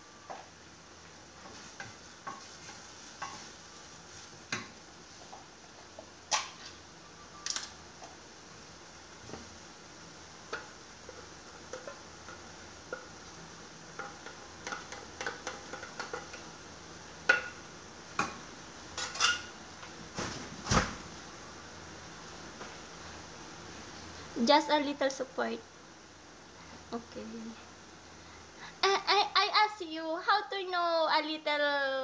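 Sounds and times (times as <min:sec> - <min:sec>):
dishes and utensils clinking: 0:19.0 - 0:19.6.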